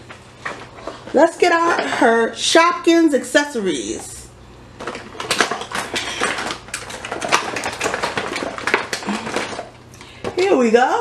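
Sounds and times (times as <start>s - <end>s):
plastic packet crackling: 5.2s - 9.7s.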